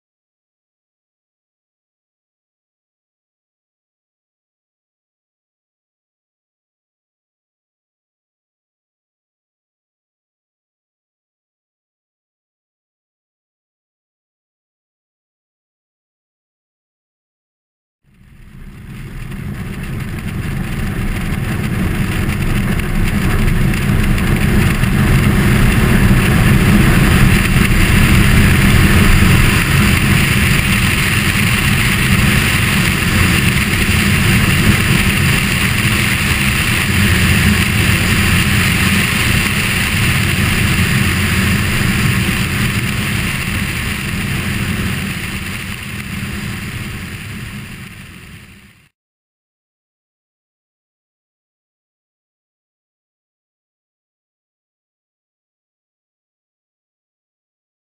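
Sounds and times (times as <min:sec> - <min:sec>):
rushing airflow: 0:18.1 - 0:48.8
airplane engine and propeller: 0:18.1 - 0:48.9.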